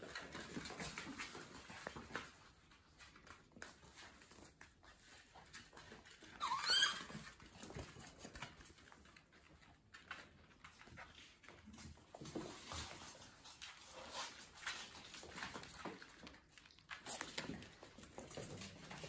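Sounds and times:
puppy claws clicking on floor: 0.0 - 19.0
puppy high-pitched yelp: 6.2 - 7.4.

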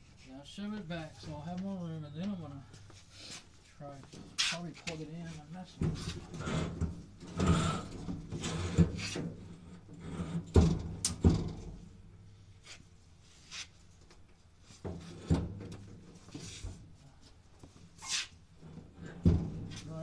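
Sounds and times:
washing machine scraping across floor: 6.3 - 9.2.

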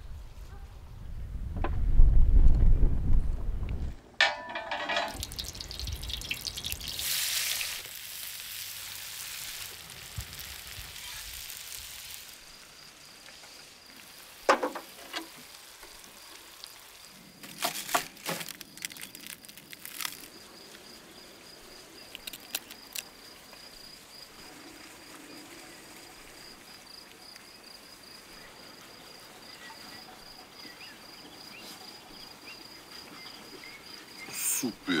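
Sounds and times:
sharp knocks and clinks: 4.2 - 5.5
food sizzling in iron pan: 4.5 - 20.7.

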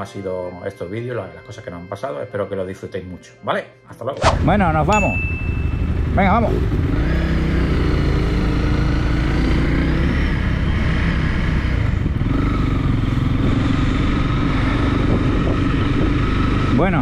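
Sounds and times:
motorcycle engine pulling away: 4.4 - 17.0.

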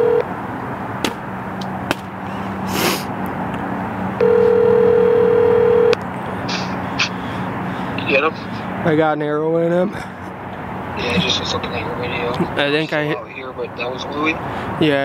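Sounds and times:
phone ringback tone: 0.0 - 0.2, 4.2 - 6.0.

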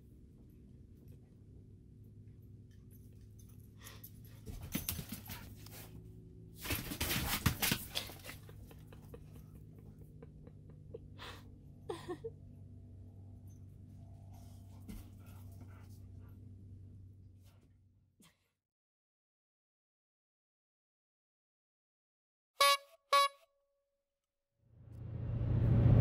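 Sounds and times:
steady low hum: 0.0 - 17.9.

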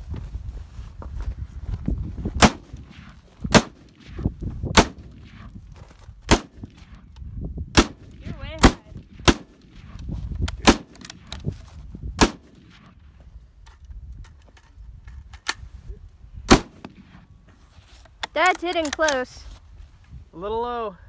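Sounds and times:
rifle shots: 2.4 - 5.5, 6.3 - 7.0, 7.7 - 10.0, 10.6 - 11.4, 12.2 - 13.0, 16.5 - 17.2.

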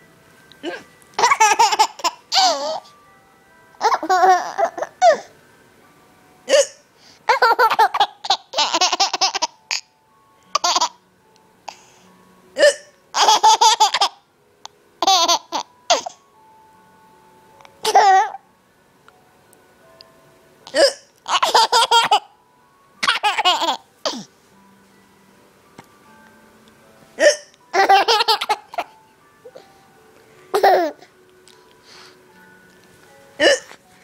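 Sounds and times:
hiccups: 20.7 - 21.1, 27.2 - 27.5, 33.4 - 33.8.

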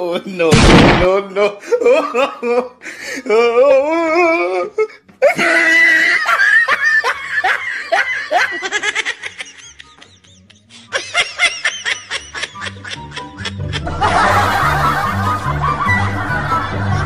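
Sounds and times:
person laughing: 1.4 - 17.0
person crying out: 3.3 - 6.4.

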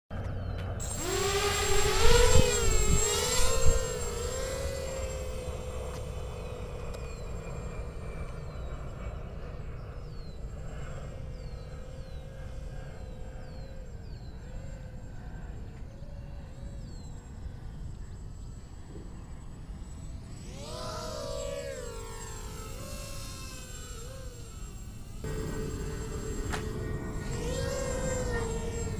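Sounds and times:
quadcopter propellers whining: 0.2 - 28.9.

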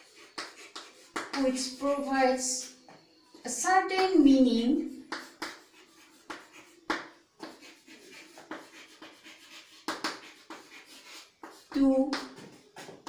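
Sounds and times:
chalk tapping and scratching: 0.0 - 2.1, 5.0 - 13.0.

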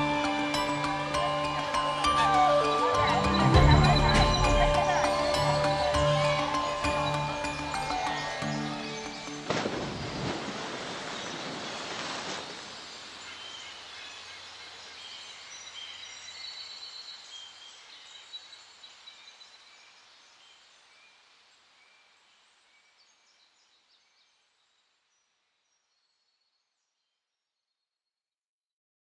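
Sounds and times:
birds chirping: 0.0 - 20.8
steady outdoor hiss: 0.0 - 26.4.

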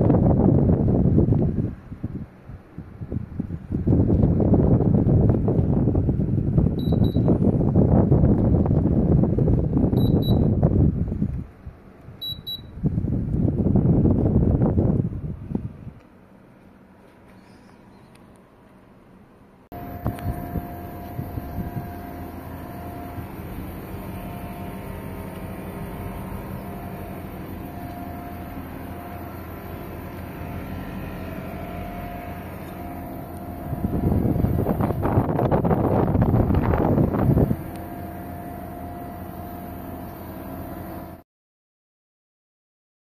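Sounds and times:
air conditioner fan and compressor hum: 0.0 - 41.2.

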